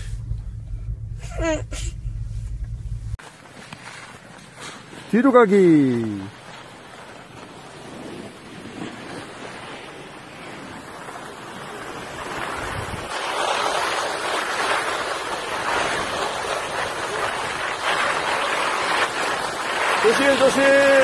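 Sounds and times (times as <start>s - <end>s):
skis scraping over snow: 3.2s - 21.0s.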